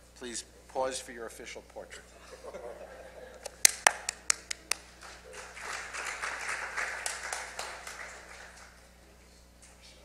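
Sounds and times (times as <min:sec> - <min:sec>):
sharp loud claps: 0:03.6 - 0:08.8
light applause: 0:03.7 - 0:09.1.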